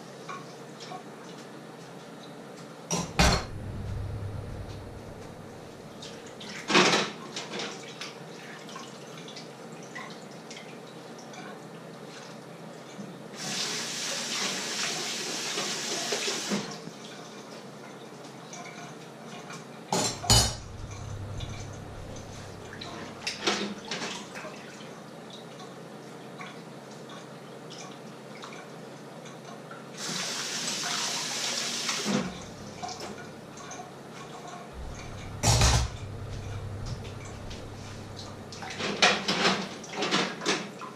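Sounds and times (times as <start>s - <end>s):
tap running into sink: 2.9s - 5.4s
dishes and pots clattering: 20.0s - 22.7s.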